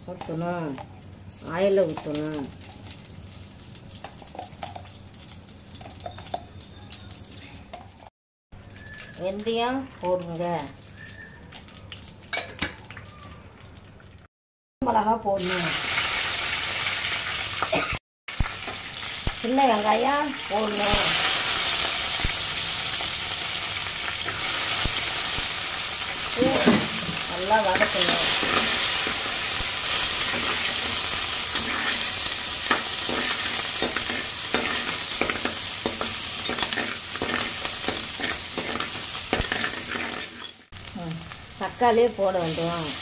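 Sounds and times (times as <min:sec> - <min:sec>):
oil sizzling faintly: 0:18.4 - 0:43.0.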